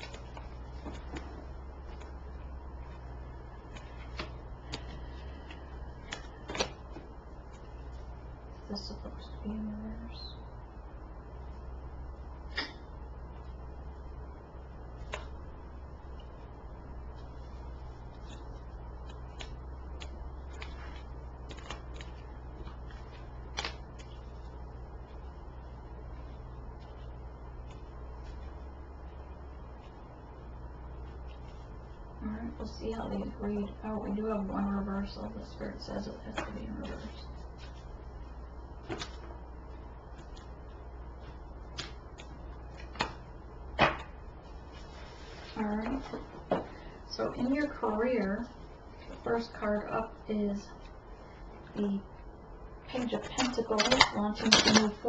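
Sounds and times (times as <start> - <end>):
cards flicking and slapping: 0.0 - 2.2, 3.7 - 7.0, 15.0 - 15.4, 18.2 - 24.4, 38.8 - 39.3, 41.7 - 43.2
steady low hum: 0.0 - 55.0.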